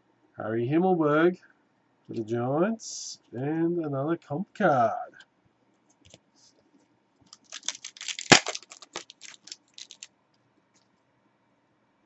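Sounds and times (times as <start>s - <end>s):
trading cards snapping: 7.3s - 10.1s.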